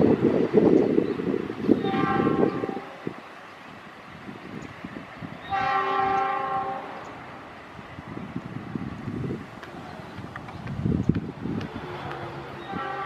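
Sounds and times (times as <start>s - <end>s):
train horn blasts: 1.8s - 3.1s, 5.4s - 7.2s, 11.8s - 13.0s.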